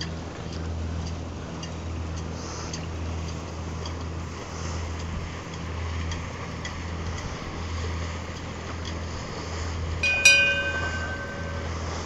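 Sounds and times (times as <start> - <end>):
bell ringing: 10.0 - 12.0.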